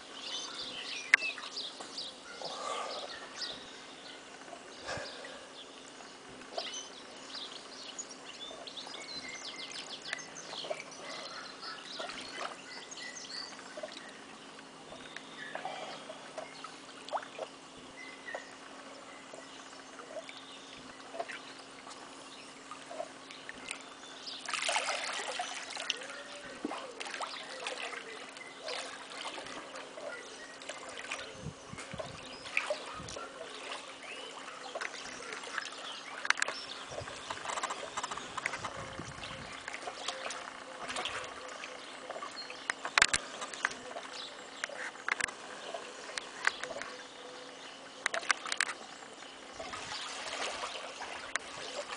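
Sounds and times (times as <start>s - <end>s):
pool water splashing: 0.0s - 51.9s.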